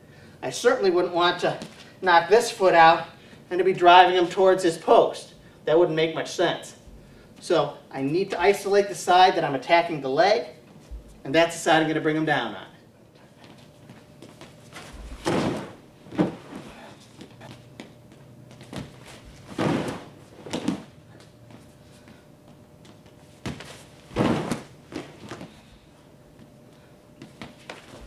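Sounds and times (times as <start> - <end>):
bodies thudding onto mat: 14.2 - 17.9, 18.5 - 20.9, 23.4 - 25.7.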